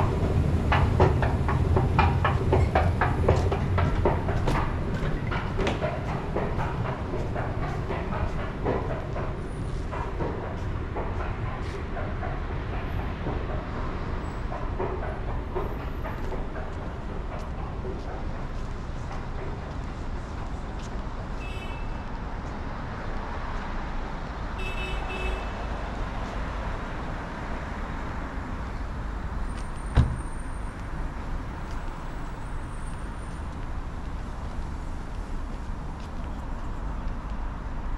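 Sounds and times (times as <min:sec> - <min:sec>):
footsteps: 0:00.0 - 0:21.4
low rumble of city ambience: 0:00.0 - 0:37.9.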